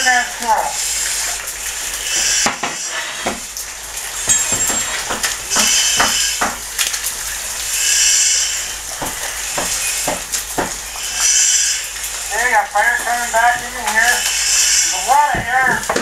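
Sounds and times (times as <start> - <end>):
fire crackling and popping: 0.0 - 16.0
breathing apparatus hiss: 0.7 - 3.5, 4.9 - 6.6, 7.2 - 15.3.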